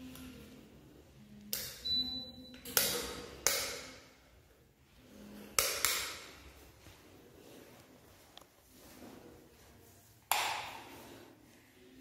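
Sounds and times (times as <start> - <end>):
sharp knocks echoing in room: 2.5 - 4.3, 5.5 - 6.6, 10.2 - 11.1.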